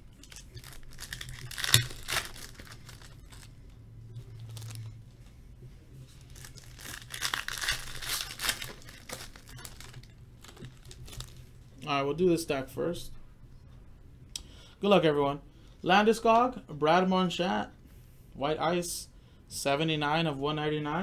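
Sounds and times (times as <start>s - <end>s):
foil wrappers tearing and crinkling: 0.2s - 3.5s, 4.4s - 4.9s, 6.2s - 11.5s.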